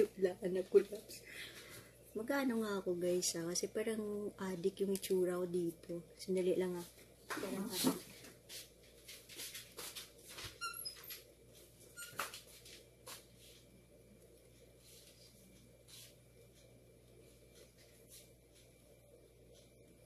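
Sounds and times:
faint steady hum: 0:00.0 - 0:20.0
high squeak: 0:12.0 - 0:12.3.

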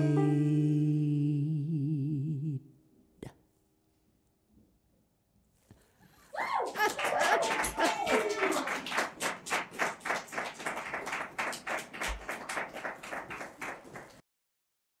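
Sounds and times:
people clapping: 0:06.3 - 0:14.2
woman laughing: 0:06.4 - 0:08.8.

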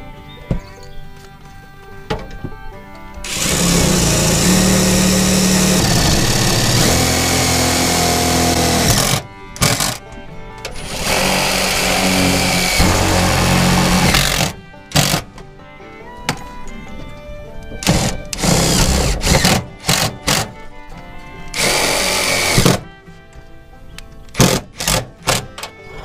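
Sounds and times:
impact driver hammering screws into metal: 0:03.2 - 0:10.0, 0:10.7 - 0:15.4, 0:17.8 - 0:20.5, 0:21.5 - 0:22.9, 0:24.4 - 0:25.7.

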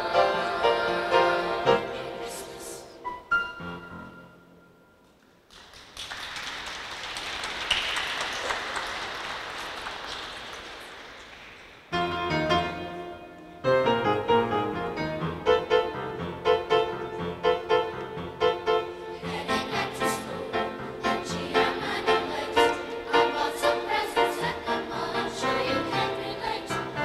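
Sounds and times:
audience applause: 0:05.5 - 0:11.9
upright piano playing chords: 0:11.9 - 0:27.0.

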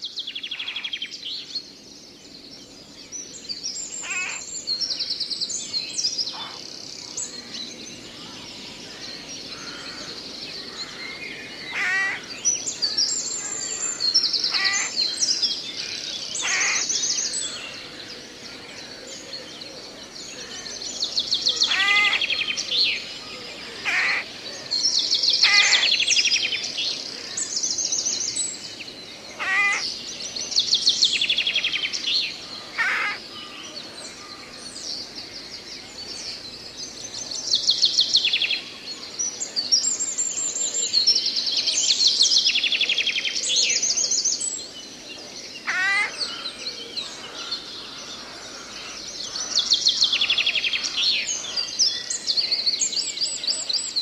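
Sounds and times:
birds singing: 0:00.0 - 0:54.0.

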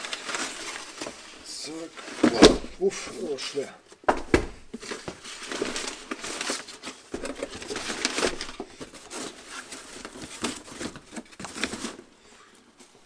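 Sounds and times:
packing paper crinkling: 0:00.0 - 0:03.1, 0:04.7 - 0:12.2
cardboard flaps scraping and knocking: 0:02.0 - 0:03.1, 0:04.1 - 0:12.0.

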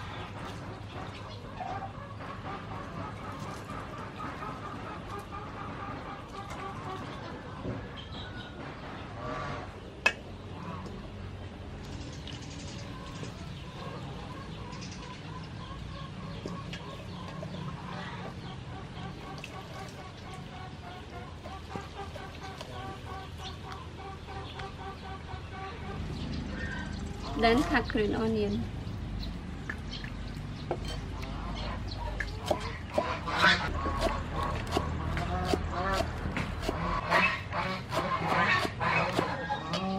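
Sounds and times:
birds calling: 0:00.0 - 0:39.9
chickens clucking: 0:00.0 - 0:39.9
cleaver chopping on wooden block: 0:33.8 - 0:36.8.

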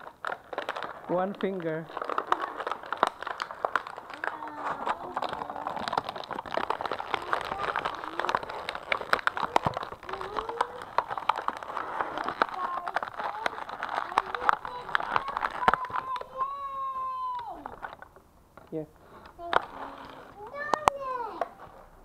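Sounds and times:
plastic toys clicking and rustling: 0:00.0 - 0:21.9
faint voices: 0:04.0 - 0:17.9.

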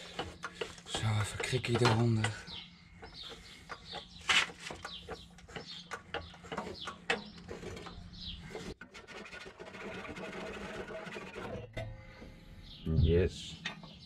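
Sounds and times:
metal clicks and knocks: 0:00.0 - 0:08.0
birds chirping: 0:00.0 - 0:08.8, 0:11.9 - 0:14.0.

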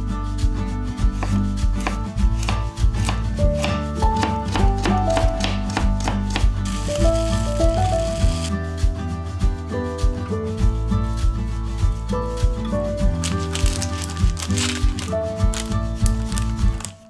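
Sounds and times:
background music: 0:00.0 - 0:17.0
knife chopping on cutting board: 0:01.1 - 0:06.6.

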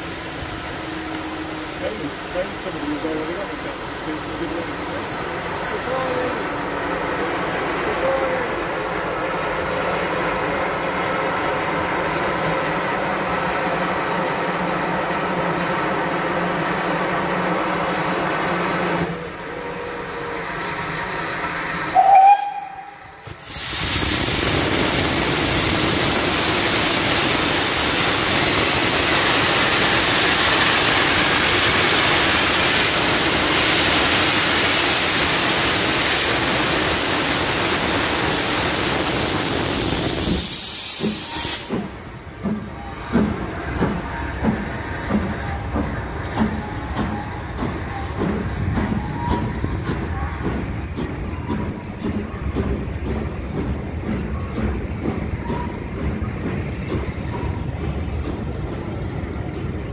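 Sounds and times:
steam locomotive hissing steam: 0:00.0 - 0:59.9.

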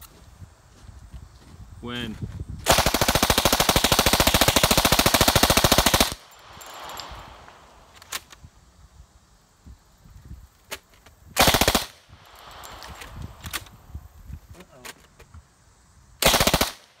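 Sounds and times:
submachine gun automatic fire: 0:02.7 - 0:06.3, 0:11.4 - 0:12.0, 0:16.2 - 0:16.8.

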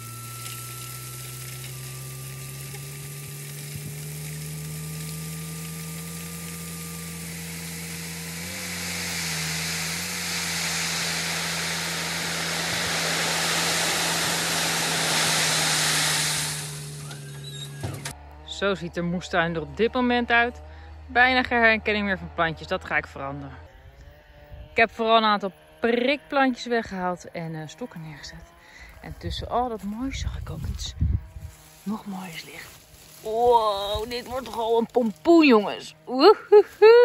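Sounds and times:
gravel sliding off truck bed: 0:00.0 - 0:18.1
truck engine running: 0:00.0 - 0:23.6
hydraulic tipper whine: 0:00.0 - 0:32.0.

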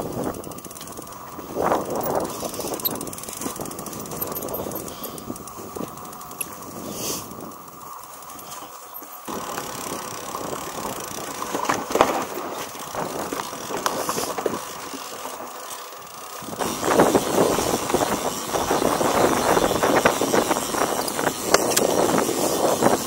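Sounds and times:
wind buffeting microphone: 0:00.0 - 0:07.8, 0:16.4 - 0:23.0
bike rattling and clicking: 0:00.0 - 0:23.0
bike tyres crunching: 0:00.0 - 0:23.0.

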